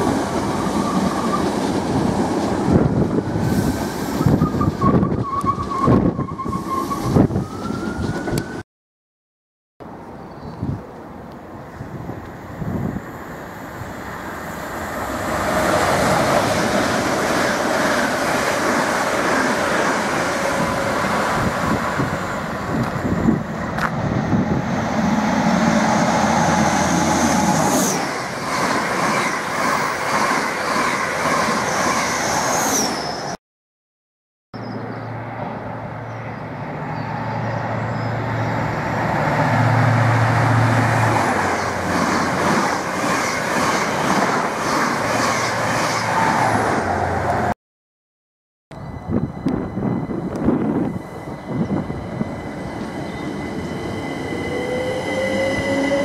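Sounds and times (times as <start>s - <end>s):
train wheel and rail noise: 0.0s - 8.6s, 9.9s - 33.4s, 34.6s - 47.5s, 48.7s - 56.0s
diesel train engine drone: 48.7s - 56.0s.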